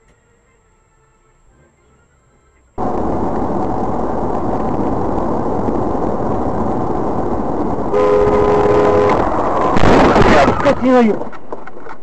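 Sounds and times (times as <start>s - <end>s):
car driving noise: 1.2s - 12.0s.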